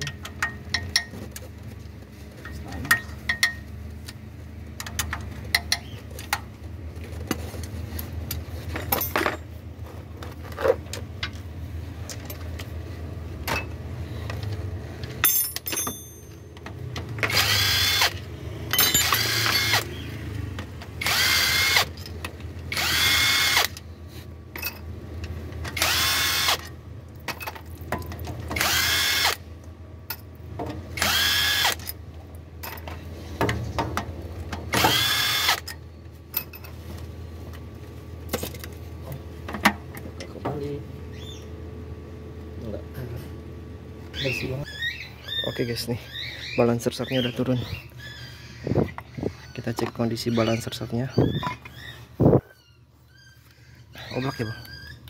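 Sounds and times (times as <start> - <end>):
cordless impact wrench whining: 17.2 - 20.1, 21.0 - 22.0, 22.7 - 23.8, 25.7 - 26.7, 28.6 - 29.4, 31.0 - 31.9, 34.7 - 35.7.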